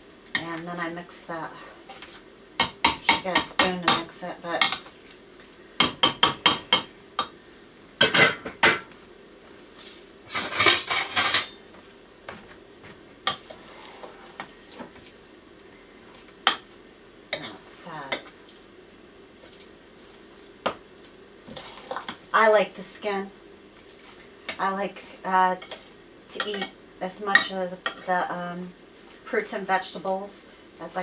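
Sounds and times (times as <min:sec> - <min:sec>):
spoon scraping bowl: 0:13.4 - 0:14.9.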